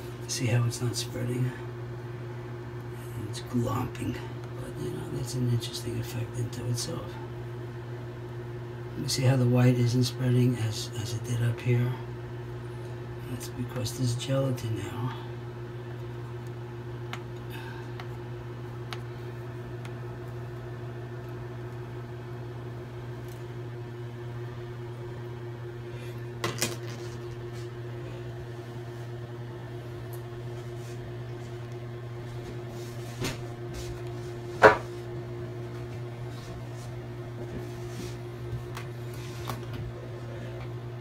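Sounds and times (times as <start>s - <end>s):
low mechanical hum: 0.0s - 41.0s.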